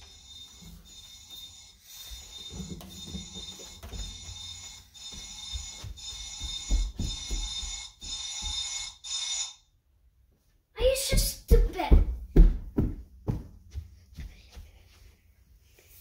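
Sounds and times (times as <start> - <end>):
high-pitched electronic ringing: 0.0 - 9.7.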